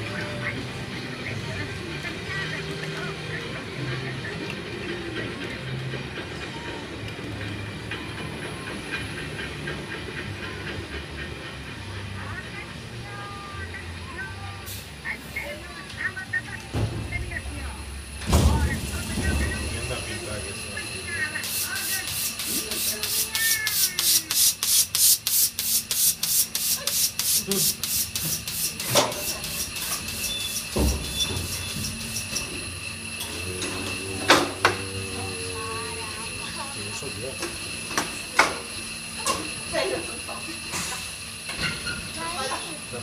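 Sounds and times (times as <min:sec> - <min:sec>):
ride car rumbling on track: 0:00.0 - 0:24.2, 0:28.8 - 0:43.0
rhythmic rasping hiss: 0:18.0 - 0:43.0.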